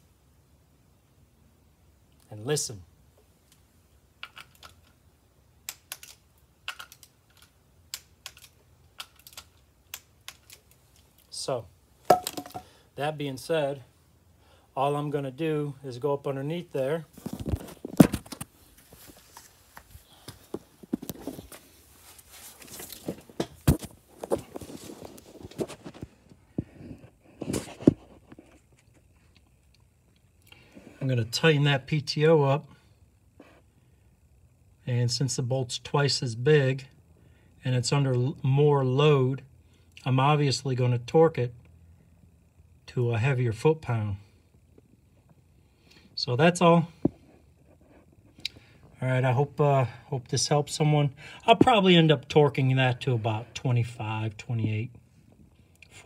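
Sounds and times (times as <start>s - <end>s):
footsteps and scuffs: 17.1s - 26.7s.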